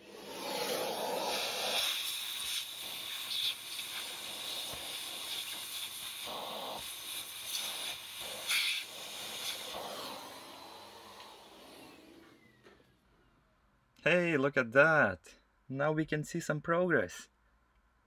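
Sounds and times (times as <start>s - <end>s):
vacuum cleaner sucking air: 0.0s - 13.0s.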